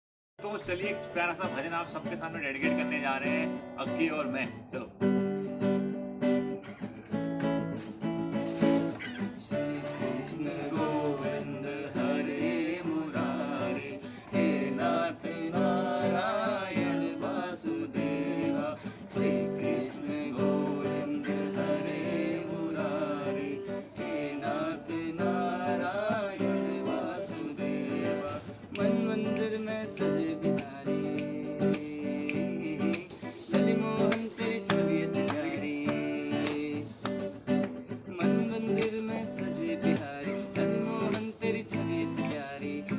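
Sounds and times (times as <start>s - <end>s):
acoustic guitar strumming: 0.4s - 42.9s
man singing: 9.4s - 42.9s.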